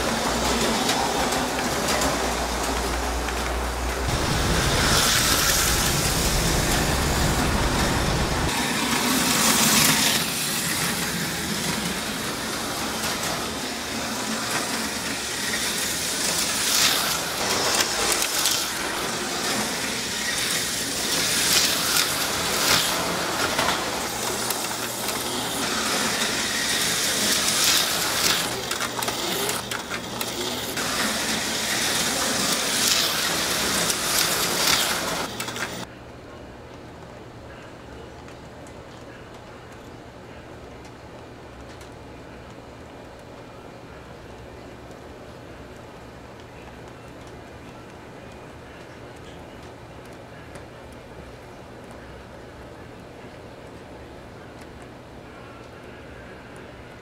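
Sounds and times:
slot cars buzzing past: 0.0s - 35.8s
low rumble: 3.8s - 8.6s.

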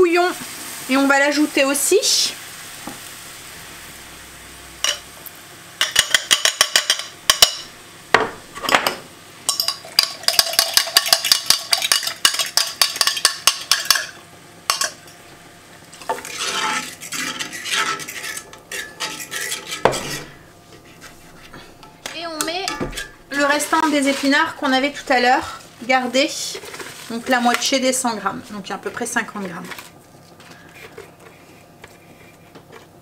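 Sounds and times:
stirring in skillet: 9.5s - 15.2s, 15.8s - 33.0s
fork whisking against glass: 16.2s - 20.3s.

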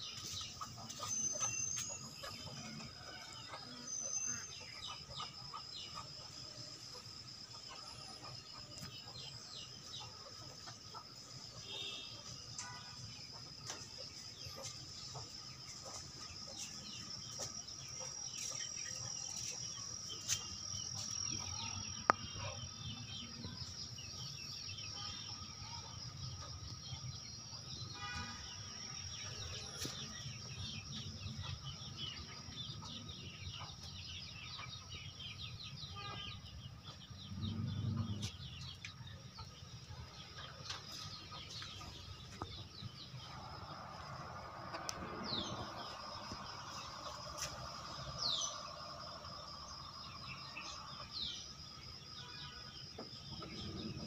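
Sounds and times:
chickens clucking: 0.1s - 3.2s.

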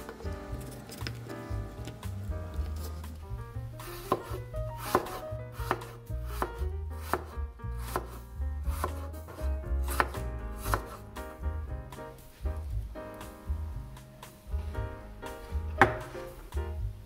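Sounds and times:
soft background music: 0.0s - 17.0s
knife chopping on wooden board: 3.8s - 11.0s, 15.8s - 16.2s.

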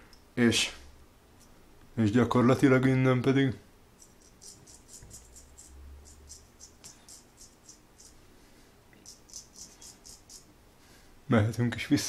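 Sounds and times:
razor scraping stubble: 4.0s - 8.2s.

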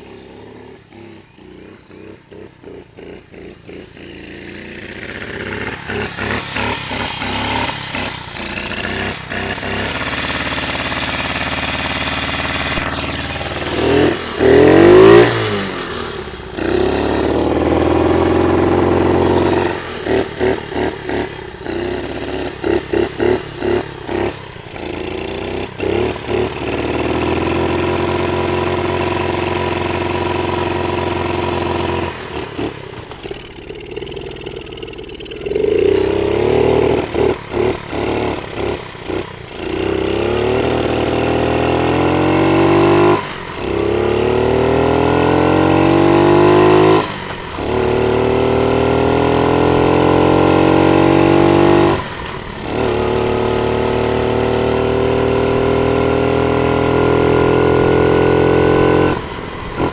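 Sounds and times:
dirt bike engine revving: 0.0s - 59.9s.

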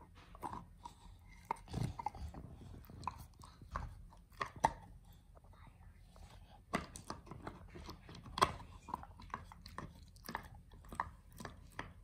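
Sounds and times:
dog gnawing on antler: 0.1s - 5.2s, 6.6s - 12.0s.

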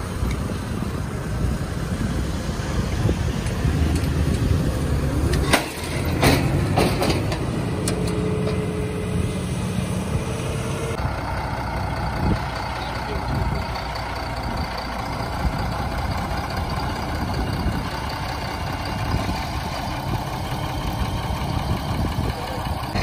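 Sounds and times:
tractor diesel engine running: 0.0s - 23.0s
metallic clanks: 5.3s - 8.7s.

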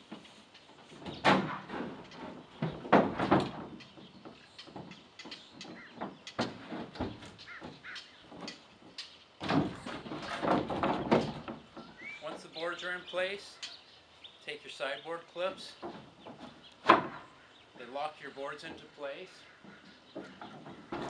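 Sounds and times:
truck sideboards scraping: 0.0s - 12.5s
truck sideboards knocking: 1.0s - 5.0s, 9.4s - 12.0s.

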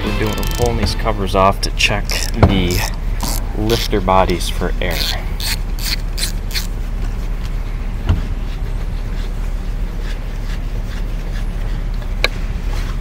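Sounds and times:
steady low hum: 0.0s - 13.0s
socket ratchet clicking: 0.3s - 0.8s, 2.1s - 3.9s, 4.9s - 6.7s.

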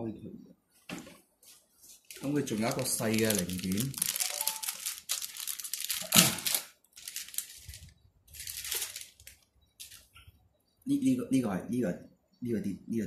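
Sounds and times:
plastic packaging crinkling: 2.0s - 10.1s.

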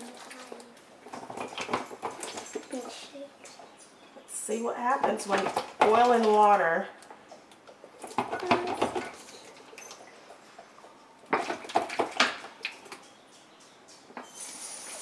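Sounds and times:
plastic bottles crinkling and knocking: 0.0s - 3.0s, 5.1s - 10.6s, 11.2s - 13.1s.

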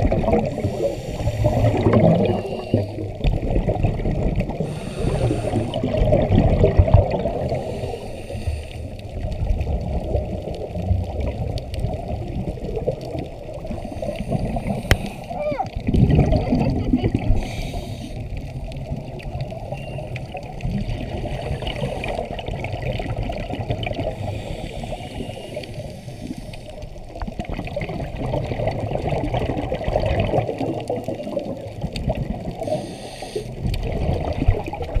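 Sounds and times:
muffled underwater rushing and bubbling: 0.0s - 35.0s.

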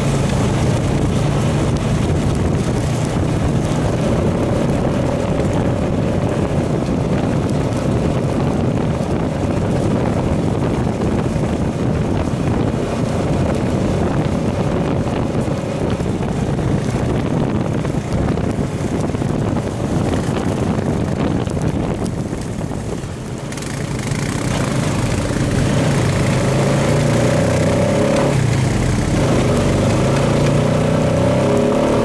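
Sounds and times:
atv engine running: 0.0s - 32.0s
wind buffeting microphone: 0.0s - 32.0s.

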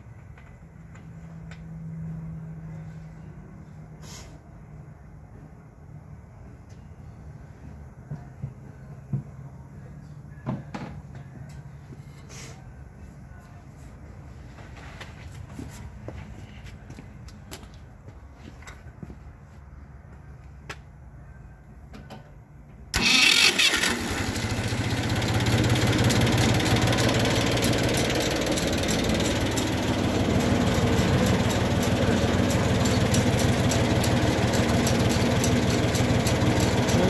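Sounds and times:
tractor engine starter cranking: 22.9s - 29.7s
tractor engine running: 22.9s - 37.0s.

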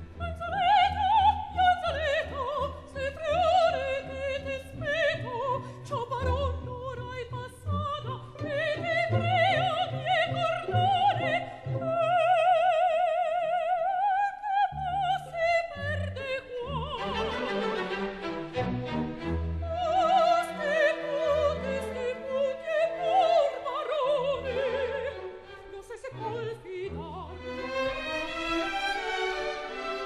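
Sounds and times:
operatic singing: 0.0s - 30.0s
orchestra playing: 16.8s - 25.5s, 26.2s - 30.0s.

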